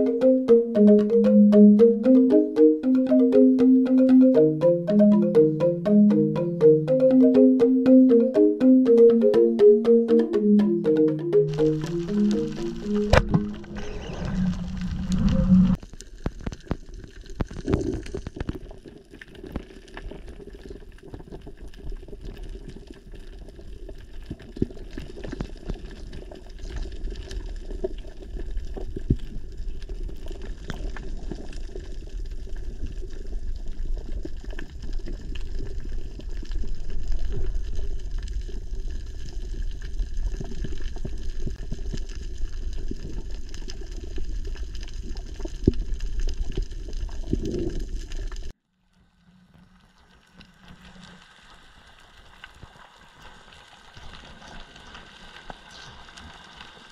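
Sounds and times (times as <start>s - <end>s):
rushing water underwater: 16.8s - 48.5s.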